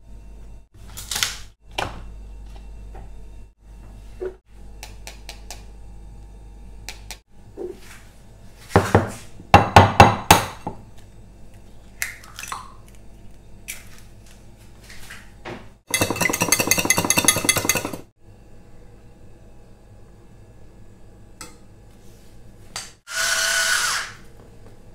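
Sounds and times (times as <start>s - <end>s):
wire whisk beating in glass bowl: 15.9s - 18.1s.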